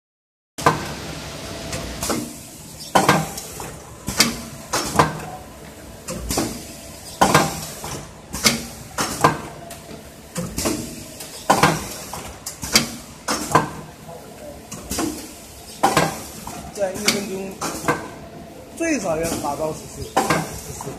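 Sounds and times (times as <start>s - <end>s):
faint machine hum: 0.6s - 20.9s.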